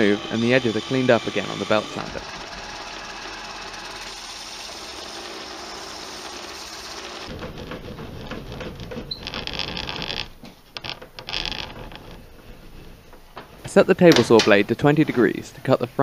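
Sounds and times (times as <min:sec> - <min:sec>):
belt sander sanding wood: 0:00.0 - 0:10.3.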